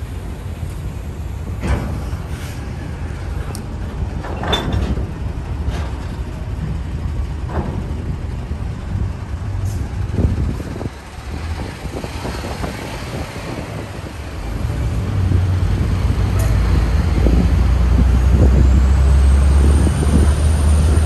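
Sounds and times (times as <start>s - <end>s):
diesel machinery rumbling: 0.0s - 21.0s
metallic clanks and knocks: 4.2s - 8.2s.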